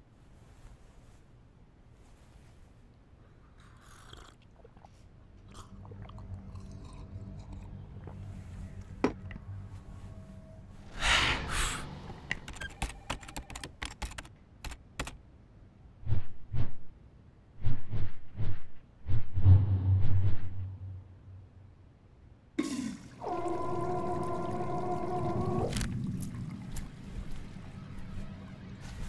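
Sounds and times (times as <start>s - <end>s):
low rumble: 5.3s - 12.4s, 17.6s - 21.8s.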